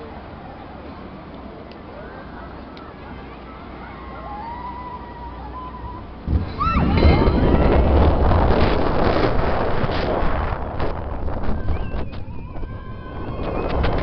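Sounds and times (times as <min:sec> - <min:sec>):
roller coaster wheels rumbling on track: 0:00.0 - 0:14.0
rushing wind: 0:04.9 - 0:14.0.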